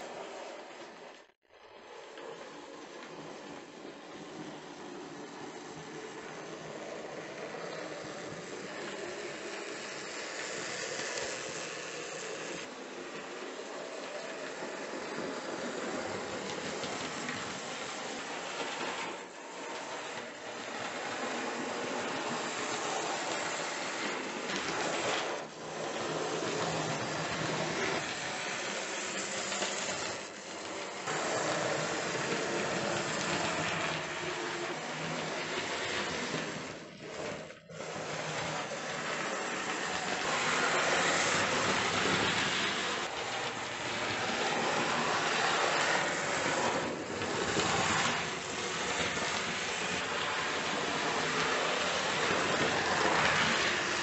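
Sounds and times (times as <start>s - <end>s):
model train running on rails: 0.0s - 54.0s.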